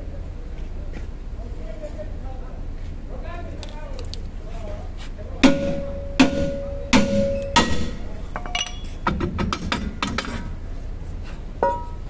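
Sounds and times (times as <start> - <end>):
hammer striking metal drum: 5.4 - 10.4
metal clinks and knocks: 5.4 - 10.5, 11.6 - 12.0.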